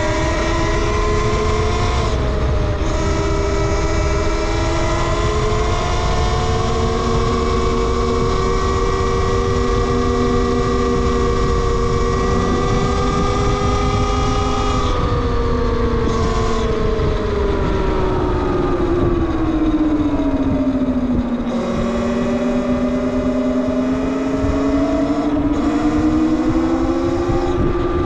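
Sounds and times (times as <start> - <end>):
electric motor whining: 0.0 - 28.0
wind and road noise: 0.0 - 28.0.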